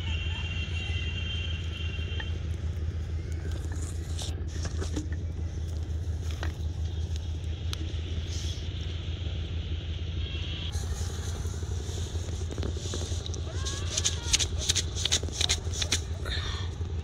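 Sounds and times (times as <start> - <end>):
low mechanical hum: 0.0 - 17.0
short clicks and scrapes: 12.4 - 16.2.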